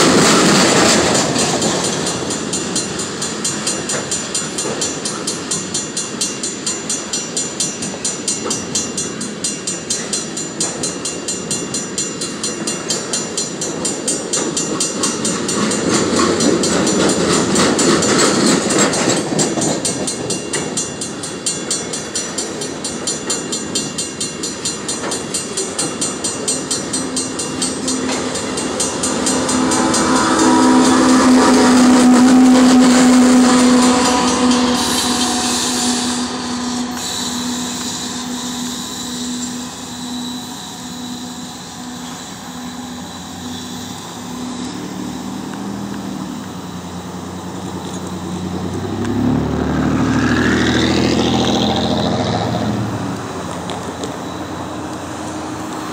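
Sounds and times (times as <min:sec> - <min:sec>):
diesel locomotive passing: 0:00.0 - 0:55.9
grade crossing bells ringing: 0:00.9 - 0:55.9
engine rising in pitch: 0:44.6 - 0:55.6.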